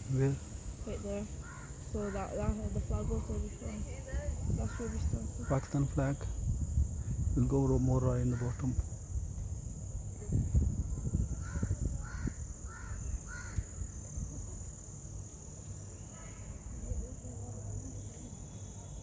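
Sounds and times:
insects chirring: 0.0s - 19.0s
crow cawing: 1.4s - 2.4s, 8.2s - 8.6s, 11.3s - 13.8s.

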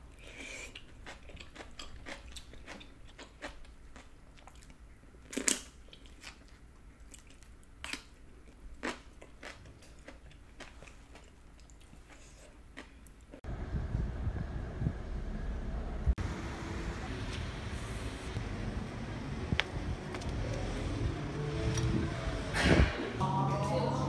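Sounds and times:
chewing and crunching food: 0.1s - 13.4s.

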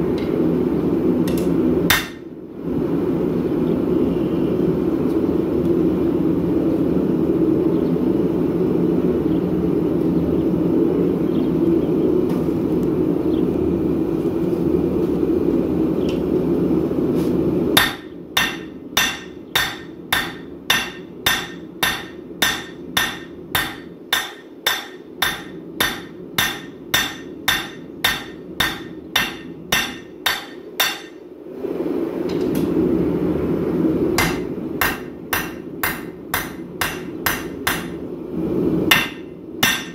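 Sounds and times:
hammer striking steel on anvil: 1.3s - 2.3s, 17.8s - 31.2s, 34.2s - 38.0s, 38.9s - 39.9s.

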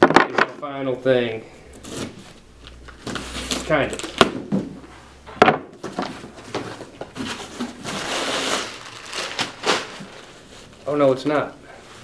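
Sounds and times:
cardboard and packing rustling: 1.8s - 5.0s, 5.8s - 12.0s.

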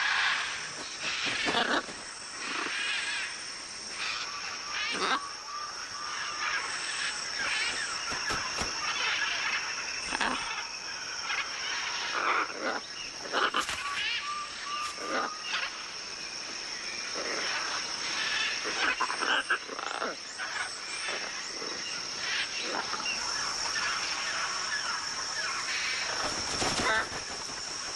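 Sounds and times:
macaws squawking: 0.0s - 3.3s, 6.0s - 10.6s, 12.1s - 15.8s, 22.2s - 27.9s
high-pitched insect drone: 0.0s - 27.9s.

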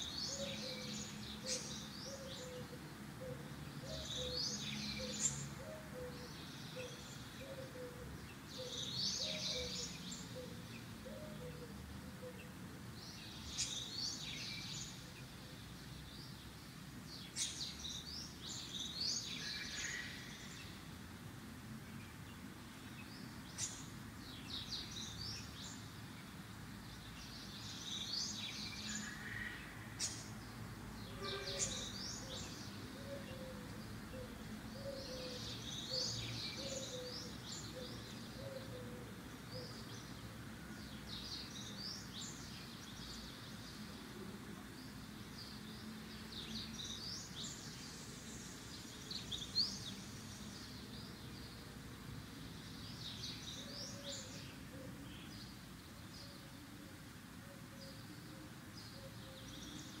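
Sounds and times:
small birds chirping: 0.0s - 60.0s.

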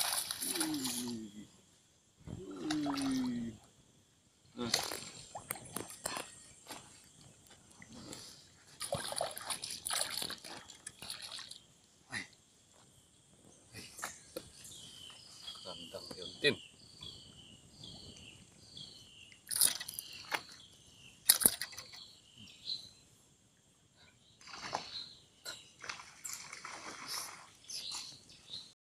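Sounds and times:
water splashing from thrashing fish: 0.0s - 1.1s, 2.6s - 3.3s, 8.8s - 11.6s, 25.8s - 27.5s.

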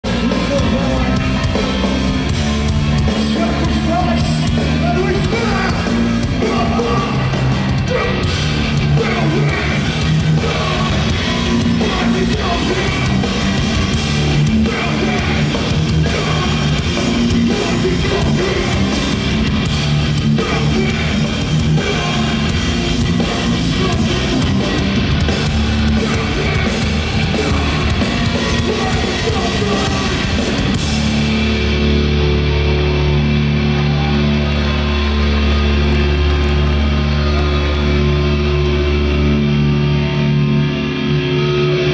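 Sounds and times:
drum kit: 0.0s - 39.7s
distorted electric guitars: 0.0s - 41.9s
person singing: 3.0s - 13.6s, 14.4s - 19.2s, 20.2s - 22.6s, 25.9s - 30.6s.

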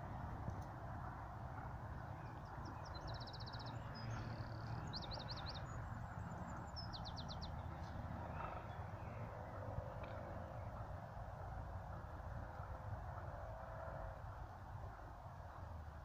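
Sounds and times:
small bird singing: 2.0s - 9.1s.

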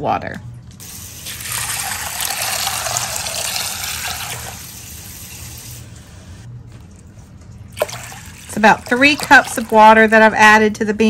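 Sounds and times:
water pouring into a bowl: 0.8s - 5.8s, 7.7s - 9.9s.

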